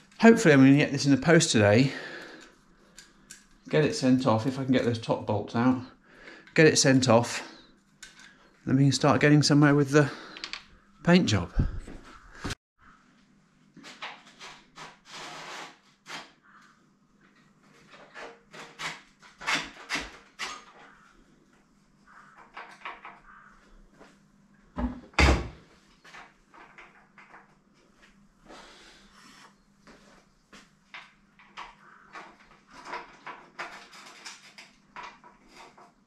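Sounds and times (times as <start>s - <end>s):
tools clicking and knocking: 10.3s - 10.7s, 22.3s - 23.3s, 30.9s - 36.0s.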